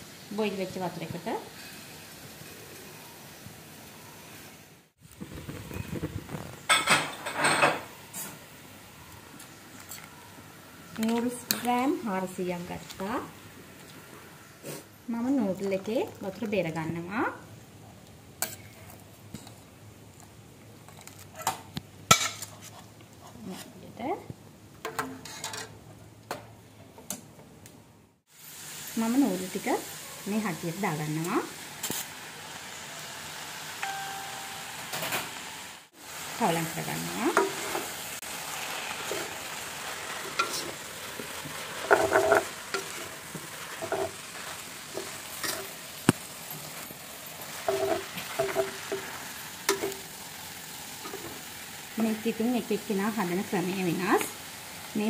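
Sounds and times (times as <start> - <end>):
frying sizzle: 0.0 - 22.8, 28.3 - 55.0
spatula scraping a metal pot: 41.8 - 45.8, 47.5 - 49.1.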